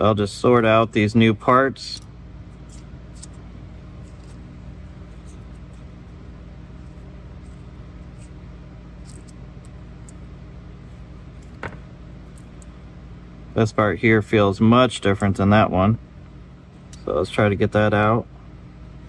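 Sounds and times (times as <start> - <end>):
low room hum: 0.0 - 19.0
small parts clicking: 1.8 - 3.4, 9.0 - 10.2.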